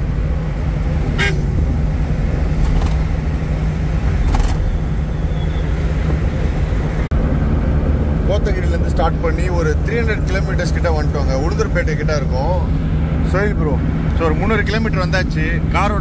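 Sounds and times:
road and wind noise: 0:00.0 - 0:16.0
van engine droning: 0:00.0 - 0:16.0.

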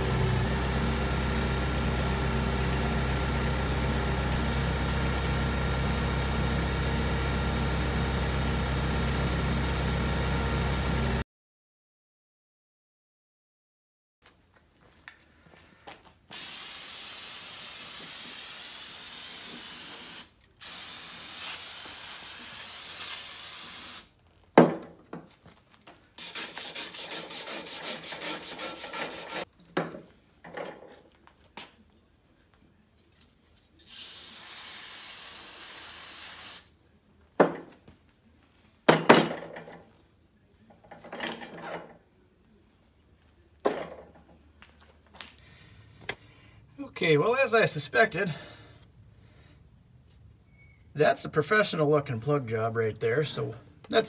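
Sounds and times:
aerosol spray hissing: 0:16.3 - 0:24.1, 0:33.9 - 0:36.7.

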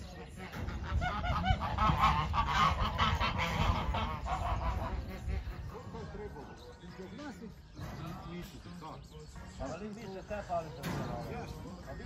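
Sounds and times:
geese honking: 0:00.0 - 0:08.6.

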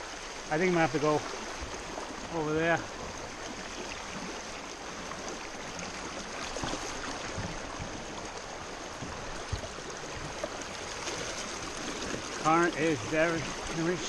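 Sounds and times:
water splashing against kayak: 0:00.0 - 0:14.0
river rushing over rocks: 0:04.3 - 0:14.0.

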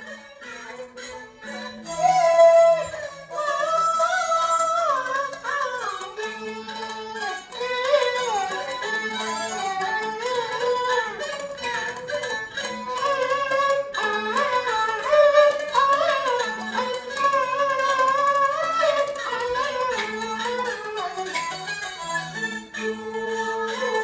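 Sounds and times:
plucked and bowed strings: 0:00.0 - 0:24.0
man singing opera: 0:01.9 - 0:05.9.

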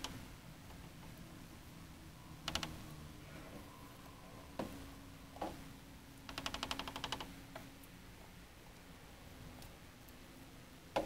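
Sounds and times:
faint steady hum: 0:00.0 - 0:11.0
rapid sharp clicks: 0:06.3 - 0:07.3.

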